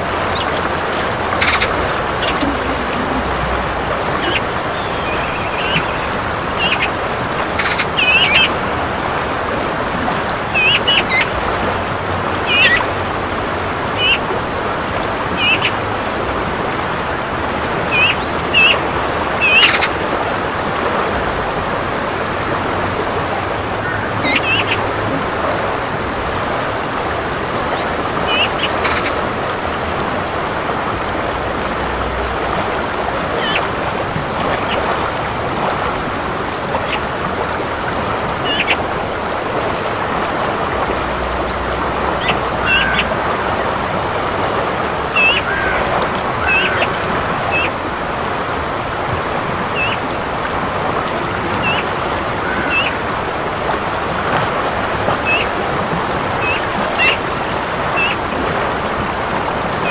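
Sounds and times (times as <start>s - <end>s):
bird chirps: 0.0s - 2.9s, 4.2s - 6.9s
river rushing: 0.0s - 59.9s.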